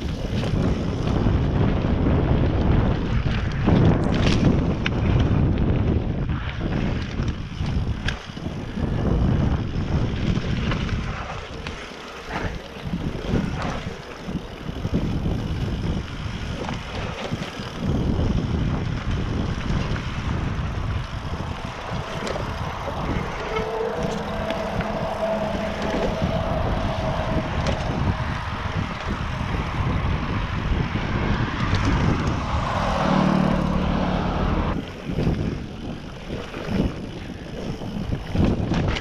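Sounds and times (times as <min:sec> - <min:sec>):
bike knocks and rattles: 0:00.0 - 0:24.6, 0:27.6 - 0:32.6
tyre roar over leaves and dirt: 0:00.0 - 0:39.0
wind buffeting microphone: 0:00.0 - 0:39.0
steady whine: 0:20.3 - 0:29.4.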